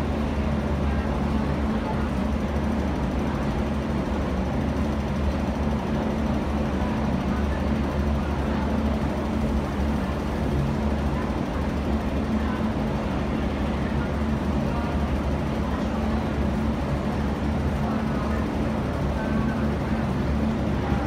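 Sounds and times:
ventilation and machinery hum: 0.0s - 21.0s.

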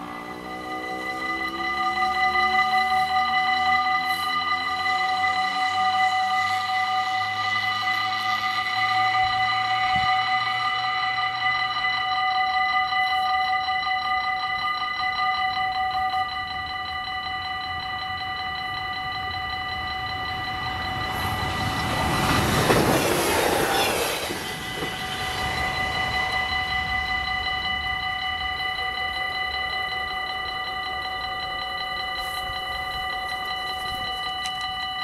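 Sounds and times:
level crossing warning bells: 0.0s - 35.0s
train rushing past: 19.4s - 29.1s.

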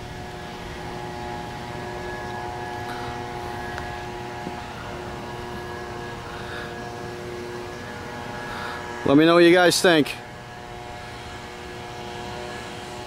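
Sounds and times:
steady mechanical hum: 0.0s - 13.0s.

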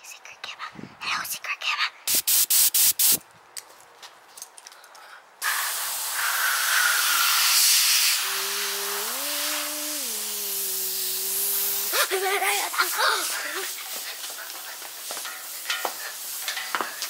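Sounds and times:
compressed air hissing: 2.1s - 3.2s, 5.4s - 17.0s
child's voice: 11.9s - 13.7s.

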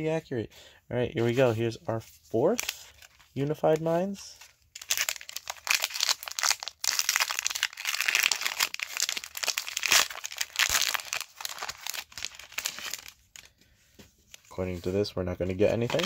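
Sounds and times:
foil wrapper crinkling and tearing: 2.4s - 13.5s, 15.7s - 16.0s.

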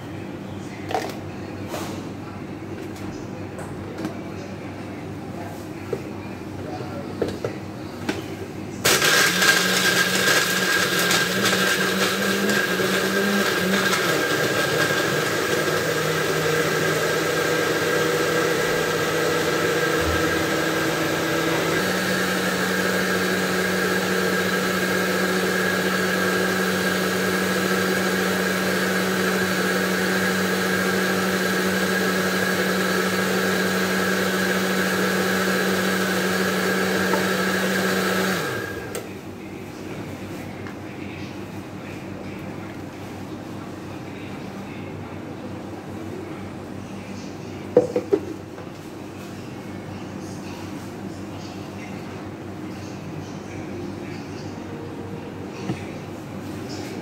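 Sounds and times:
electric blender running: 8.8s - 39.1s.

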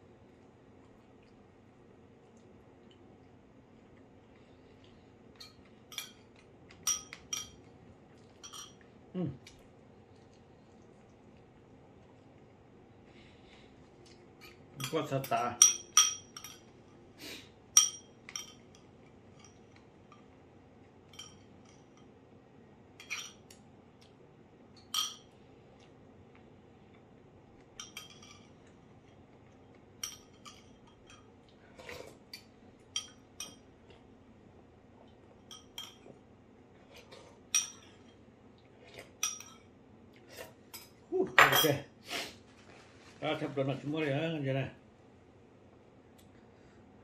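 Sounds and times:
metal spoon clinking ceramic bowl: 6.8s - 7.6s, 8.4s - 8.8s, 14.4s - 16.7s, 17.8s - 19.6s, 21.1s - 22.1s, 24.8s - 25.3s, 27.8s - 28.5s, 30.0s - 31.3s, 32.9s - 33.6s.

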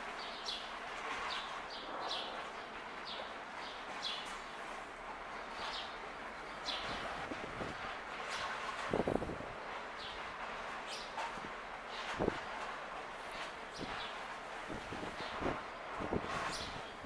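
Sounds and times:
small birds chirping: 15.0s - 17.0s.

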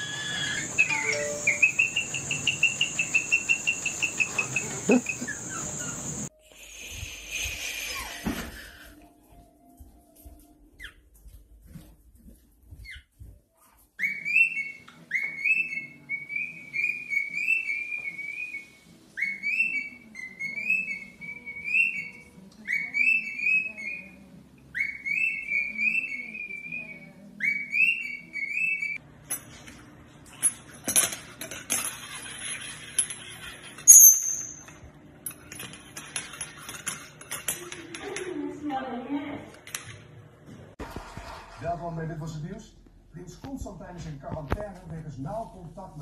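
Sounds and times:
cockatiel whistling: 0.0s - 8.2s
sharp clink: 33.9s - 34.8s.

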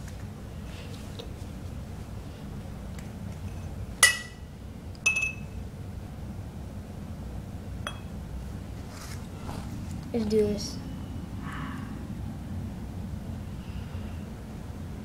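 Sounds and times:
glass cups clinking: 4.0s - 4.4s, 5.0s - 5.5s, 7.8s - 8.1s.

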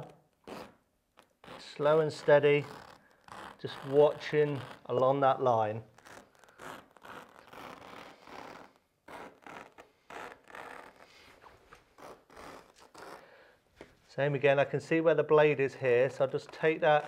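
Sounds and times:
blade slicing through carpet: 1.4s - 5.0s.

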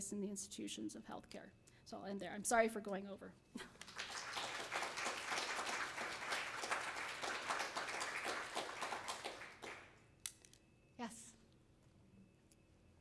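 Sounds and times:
audience applauding: 3.8s - 9.9s.

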